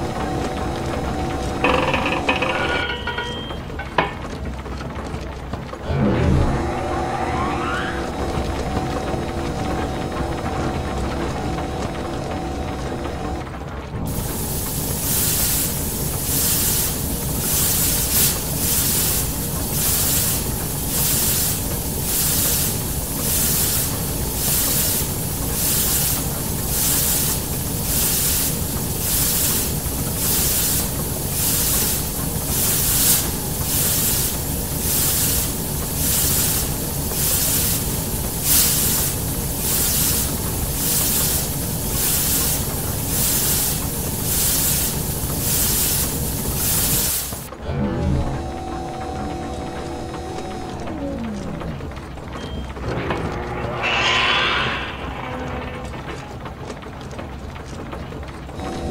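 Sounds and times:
rhythmic hissing steam bursts: 0:00.0 - 0:04.1, 0:14.0 - 0:47.7, 0:52.7 - 0:56.5
low mechanical rumble: 0:00.0 - 0:46.7, 0:47.3 - 0:58.9.

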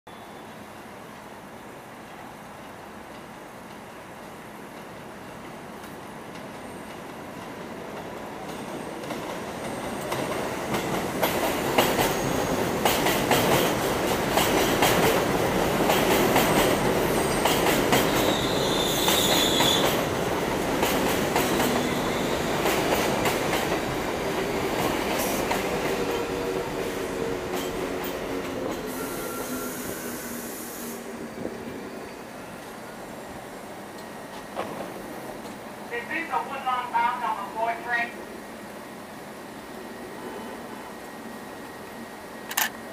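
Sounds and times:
high wheel squeal: 0:28.9 - 0:31.0
train motor whine: 0:28.9 - 0:31.1
short hiss: 0:29.0 - 0:31.1
train wheel clicks over rail joints: 0:42.5 - 0:42.8.

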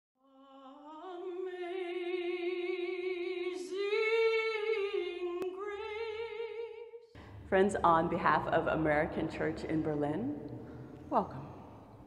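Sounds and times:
woman singing with vibrato: 0:00.4 - 0:06.6.

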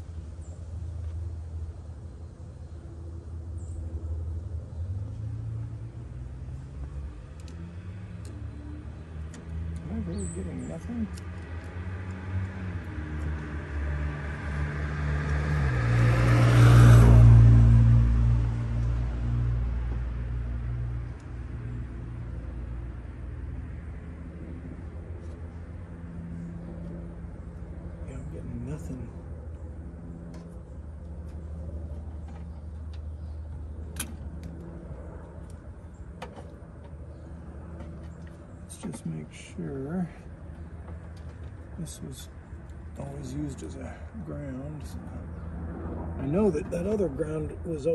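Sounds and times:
car driving past: 0:11.7 - 0:23.9
steady low hum: 0:17.0 - 0:47.9.

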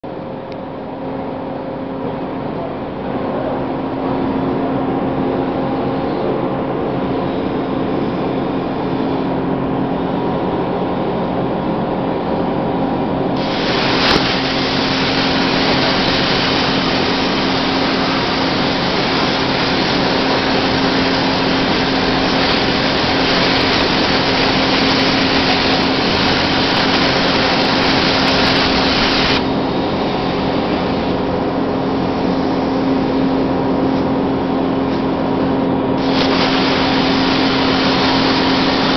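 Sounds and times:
machine hum with constant tone: 0:00.0 - 0:38.9
plasma torch click: 0:13.4 - 0:29.5
plasma torch hissing: 0:13.4 - 0:34.2, 0:36.0 - 0:38.9.

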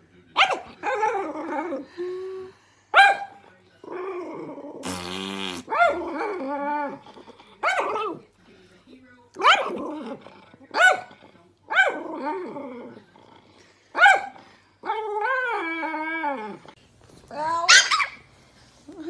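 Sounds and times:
small dog barking and yapping: 0:17.5 - 0:18.2.

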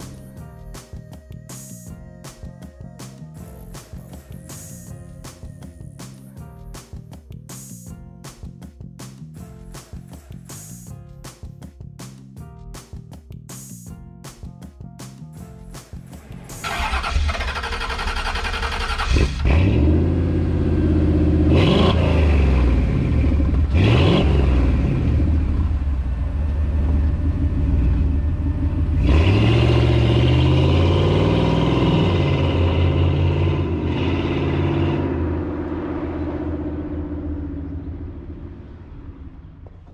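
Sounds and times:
engine revving and accelerating: 0:16.5 - 0:26.0, 0:26.9 - 0:39.8.

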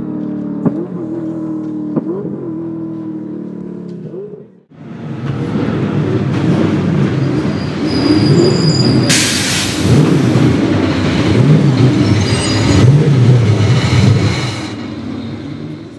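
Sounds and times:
car engine burbling: 0:00.0 - 0:14.4
thin high squeals: 0:12.0 - 0:12.9.

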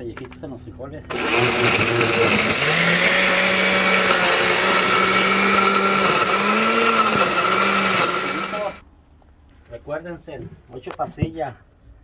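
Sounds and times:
blender running: 0:01.1 - 0:08.8.

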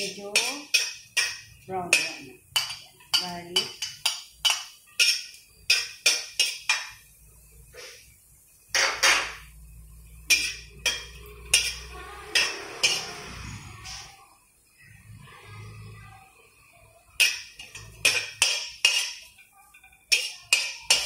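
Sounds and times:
metal clinking on wok: 0:00.0 - 0:07.0, 0:10.1 - 0:13.3, 0:17.2 - 0:21.0.

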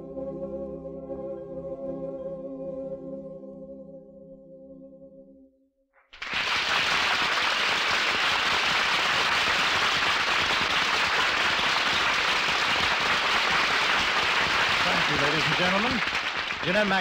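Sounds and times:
audience applauding: 0:06.0 - 0:17.0.

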